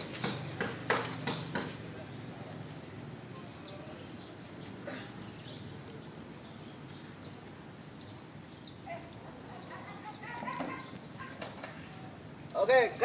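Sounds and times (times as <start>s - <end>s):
bird chirps: 3.3s - 12.2s.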